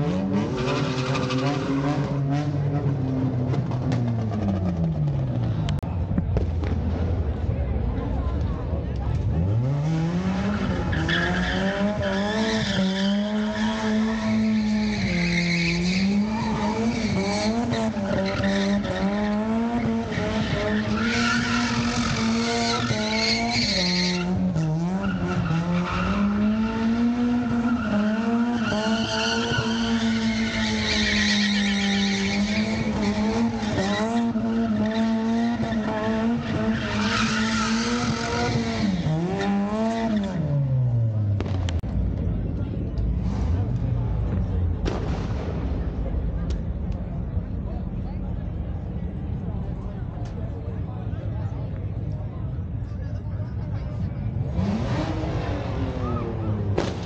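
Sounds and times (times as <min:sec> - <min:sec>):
car engine at high revs: 0:08.9 - 0:44.9, 0:54.3 - 0:57.0.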